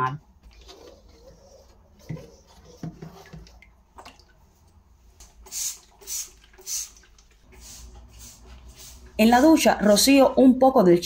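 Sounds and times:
spray bottle squirts: 0:05.2 - 0:09.5.

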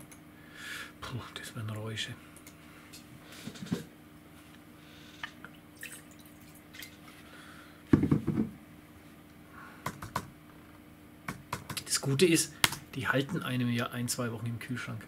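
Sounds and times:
knock on table: 0:07.9 - 0:08.6.

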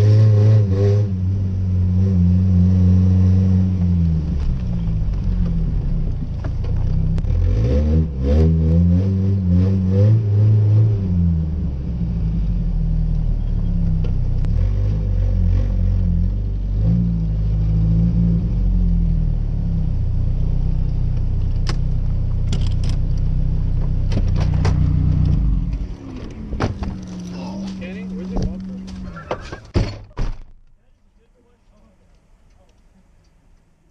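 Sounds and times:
truck engine revving: 0:00.0 - 0:06.0, 0:07.1 - 0:13.6.

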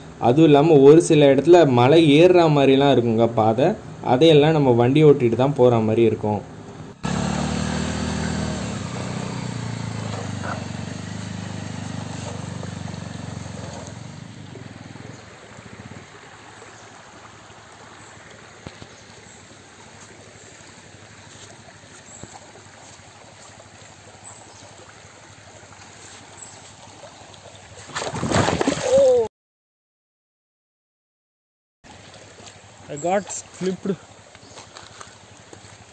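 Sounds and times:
motorcycle engine at low revs: 0:06.7 - 0:25.4
stream water running over rocks: 0:07.0 - 0:29.3, 0:31.9 - 0:35.9.

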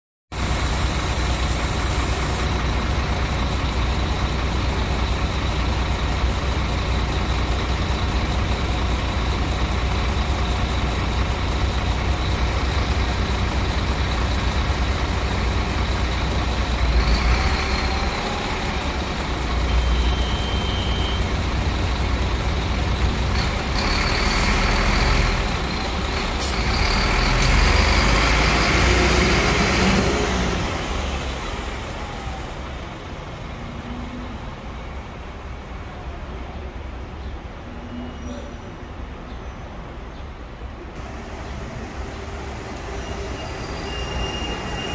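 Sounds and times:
bus engine rumble: 0:00.3 - 0:44.9
bus door air hiss: 0:00.4 - 0:02.5.

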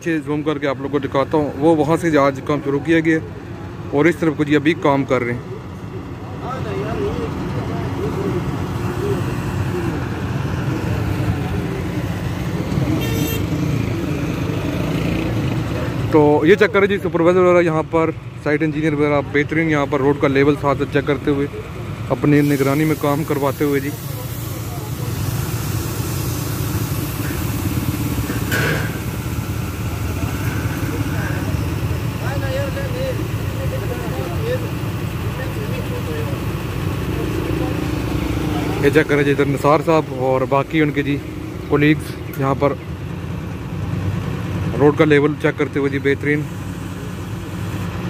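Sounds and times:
road machinery engines running: 0:00.0 - 0:48.0
short horn toot: 0:12.9 - 0:13.6.

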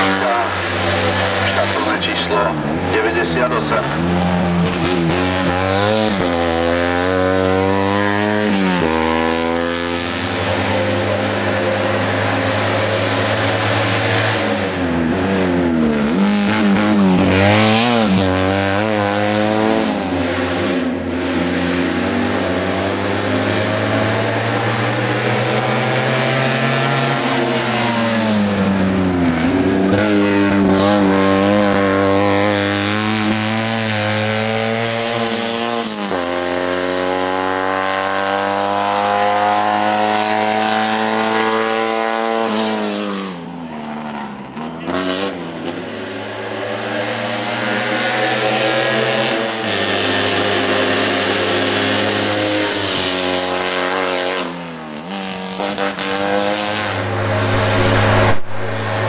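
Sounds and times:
blipped downshifts: 0:00.0 - 0:09.2, 0:56.6 - 0:59.0
racing car engine revving: 0:00.0 - 0:59.0.

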